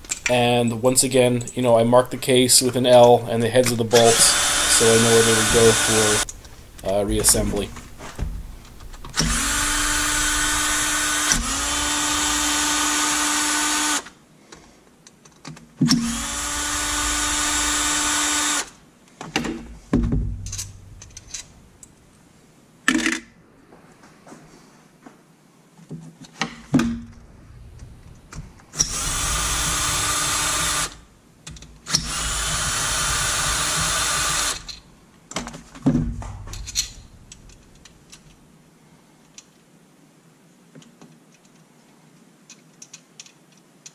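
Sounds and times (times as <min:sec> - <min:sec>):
power driver spinning bolts: 0:03.5 - 0:07.9
bolts clicking and clinking: 0:19.3 - 0:22.0, 0:34.5 - 0:38.4, 0:42.4 - 0:43.9.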